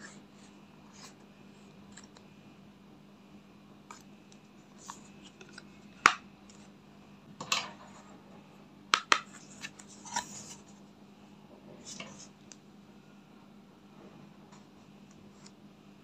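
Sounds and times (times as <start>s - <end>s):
makeup palettes clicking: 8.9s - 9.3s.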